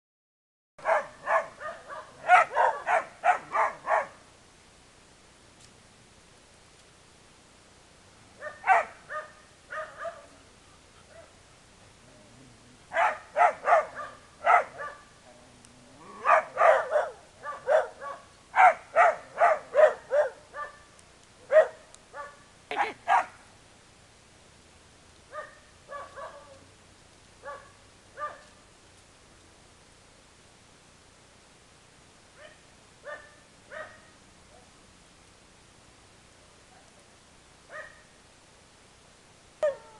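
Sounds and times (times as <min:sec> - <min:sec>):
dog barking angrily: 0:00.8 - 0:04.2, 0:08.4 - 0:10.4, 0:12.9 - 0:15.1, 0:16.0 - 0:20.8, 0:21.5 - 0:23.4, 0:25.3 - 0:26.6.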